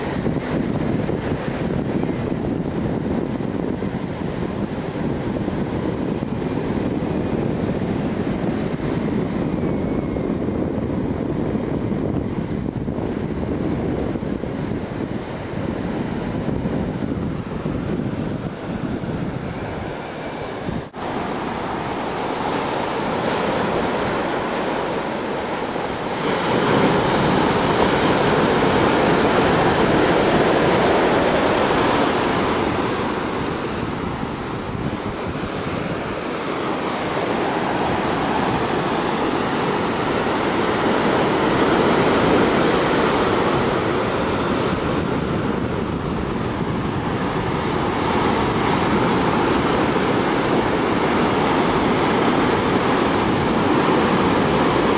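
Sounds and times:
surf breaking over rocks: 20.9 - 54.9.

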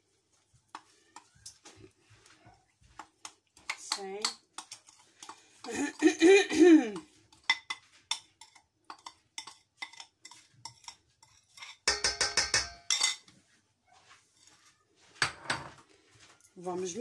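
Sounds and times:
spoon scraping and tapping bowl: 0.7 - 6.0, 6.9 - 13.4.

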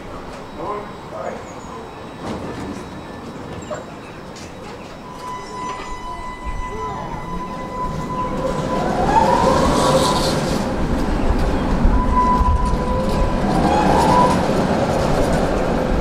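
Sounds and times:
tram wheels rumbling on rails: 0.0 - 16.0
steady high tone: 5.0 - 14.5.

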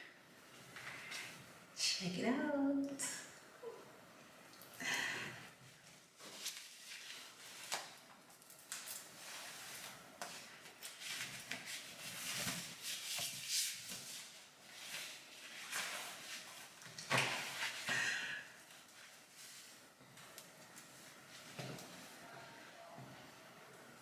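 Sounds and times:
rustling: 5.7 - 17.9.

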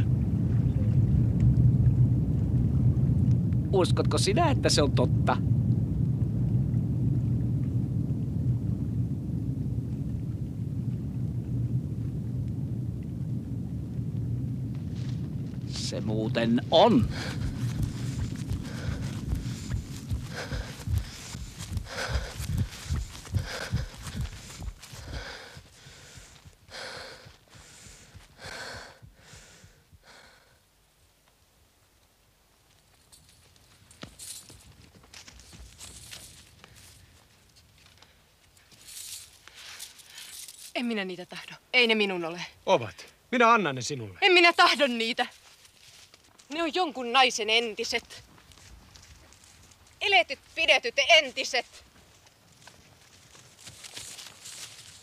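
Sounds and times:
low steady rumble: 0.0 - 34.4
woman breathing hard: 17.1 - 30.7.

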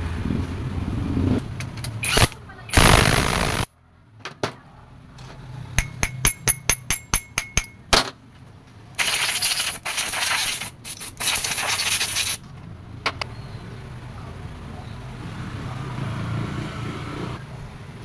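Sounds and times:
metal clinks: 5.8 - 7.8.

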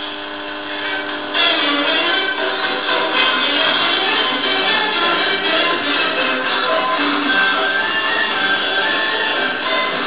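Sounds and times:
music from radio loudspeaker: 0.0 - 10.0.

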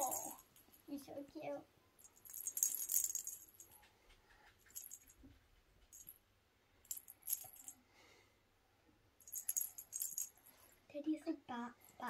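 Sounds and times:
small bell jingling: 0.0 - 1.0, 2.0 - 3.9, 4.6 - 6.2, 6.8 - 7.8, 9.2 - 10.6.

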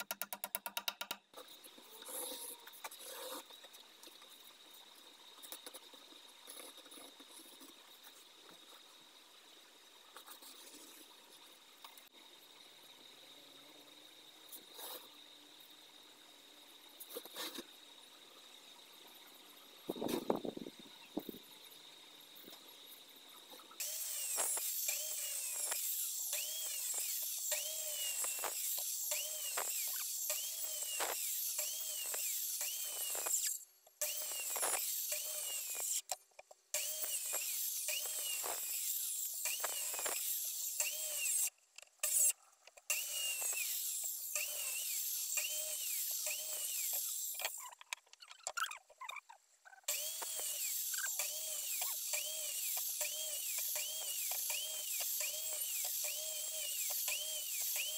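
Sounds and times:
circular saw cutting wood: 1.6 - 9.0, 23.5 - 47.9, 49.9 - 57.9.

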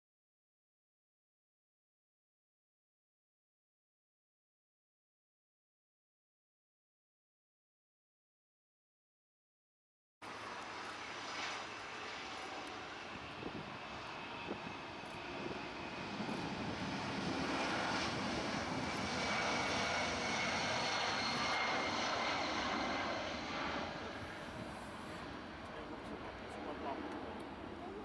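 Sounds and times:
high turbine whine: 10.2 - 28.0
jet airliner passing: 10.2 - 28.0.

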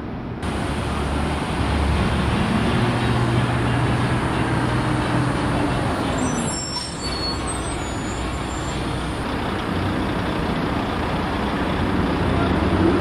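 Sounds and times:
road traffic noise: 0.0 - 13.0
faint high squeaks: 6.2 - 8.9.

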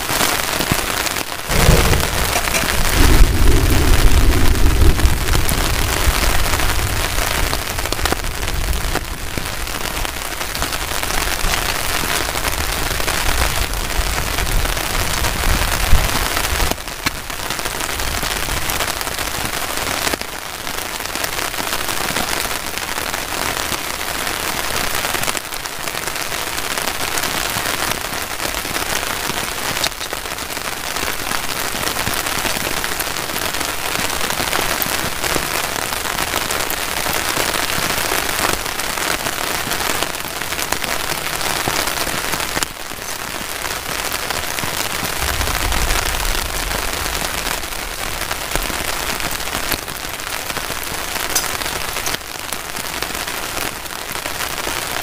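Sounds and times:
heavy rain on a tarp: 0.0 - 55.0
low rumble: 1.4 - 9.1, 45.1 - 49.0.

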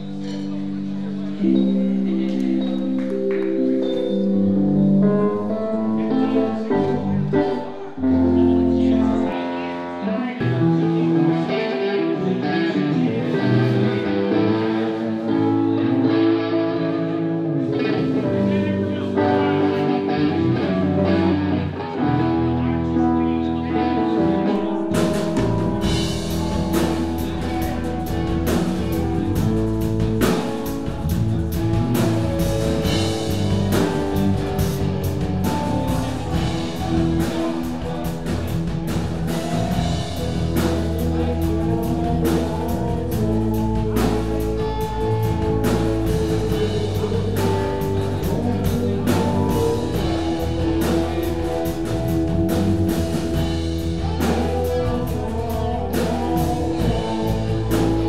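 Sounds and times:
electric bass: 0.0 - 9.6, 10.4 - 58.0
electric guitars: 0.0 - 58.0
keyboard playing: 0.0 - 58.0
drum kit: 24.6 - 58.0.

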